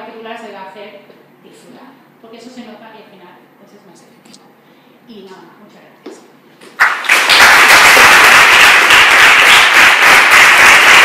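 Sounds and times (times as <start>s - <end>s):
audience applause: 6.8s - 11.0s.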